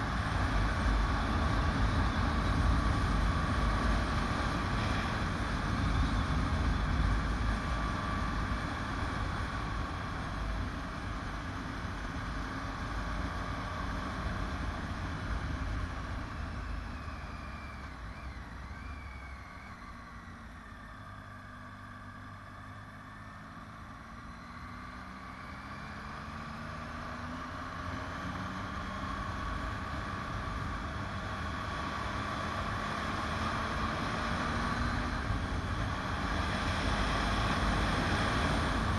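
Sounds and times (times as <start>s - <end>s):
motorcycle engine accelerating: 0.0s - 38.9s.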